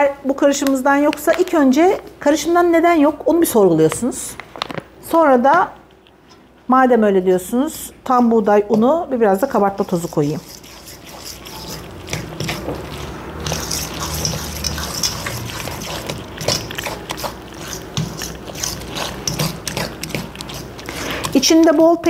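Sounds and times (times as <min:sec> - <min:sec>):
utensil scraping metal bowl: 0:08.6 - 0:22.0.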